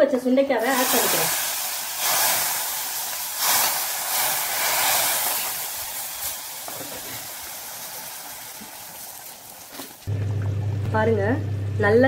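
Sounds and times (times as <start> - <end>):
hot oil sizzling in curry: 0.6 - 10.1.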